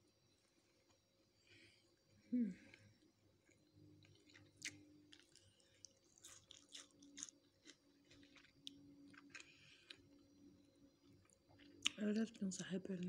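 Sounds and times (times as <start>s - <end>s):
person chewing food: 2.7s - 10.4s, 11.0s - 12.0s.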